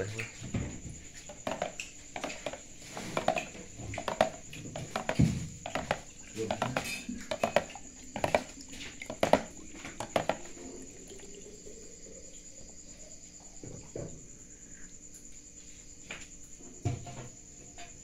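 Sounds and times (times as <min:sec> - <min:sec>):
crickets chirring: 0:00.0 - 0:18.0
metal ladle scraping plastic tub: 0:01.3 - 0:10.8.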